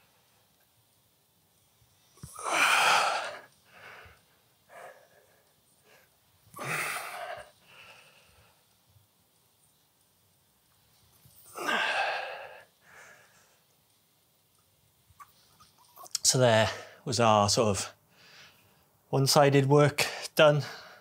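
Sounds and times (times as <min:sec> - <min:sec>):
man breathing out hard: 0:02.2 - 0:08.5, 0:11.5 - 0:13.5
short breaths: 0:18.1 - 0:18.9.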